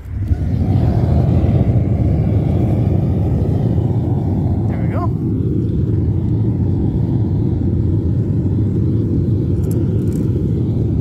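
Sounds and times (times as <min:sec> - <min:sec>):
gas burner rumbling: 0:00.0 - 0:11.0.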